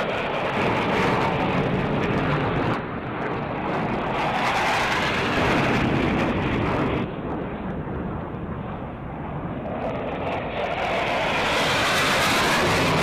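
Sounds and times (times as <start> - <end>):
fighter jets roaring: 8.1 - 13.0.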